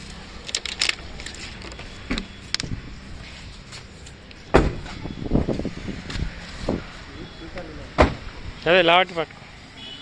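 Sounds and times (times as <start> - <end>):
car door shutting: 4.5 - 6.8, 7.9 - 8.3.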